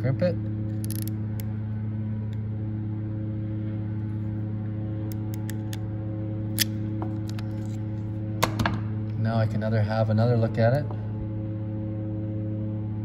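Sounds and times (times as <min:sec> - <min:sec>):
steady low hum: 0:00.0 - 0:13.0
crimp tool ratchet clicking: 0:00.8 - 0:01.1.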